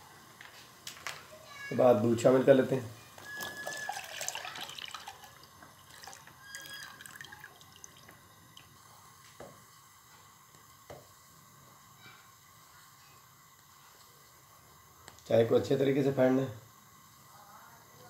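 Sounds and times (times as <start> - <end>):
milk poured into boiling tea: 3.2 - 15.3.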